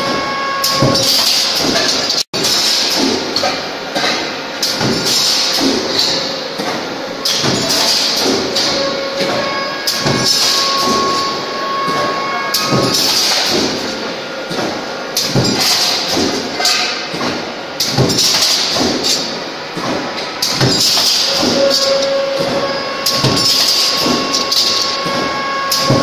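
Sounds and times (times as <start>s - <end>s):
steady machine hum: 0.0s - 26.0s
stamping press striking: 14.5s - 26.0s.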